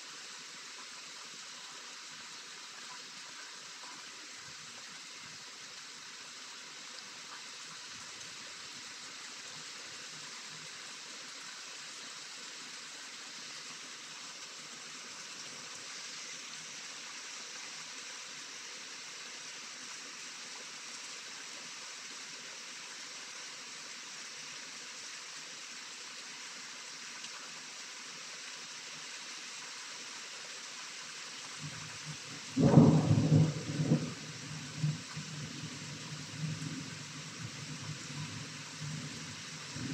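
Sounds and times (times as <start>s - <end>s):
steady rain falling: 0.0s - 39.9s
thunderclap: 32.6s - 34.2s.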